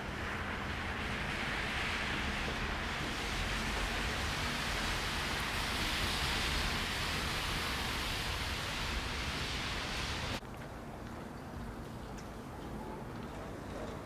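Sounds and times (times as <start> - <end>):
steady rushing noise: 0.0 - 10.4.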